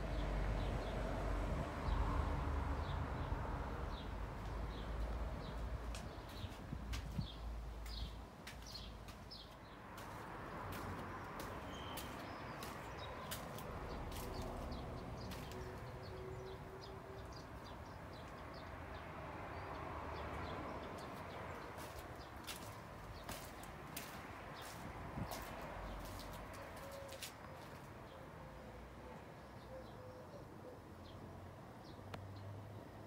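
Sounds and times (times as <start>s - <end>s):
small birds chirping: 4.0s - 18.8s, 20.4s - 27.8s.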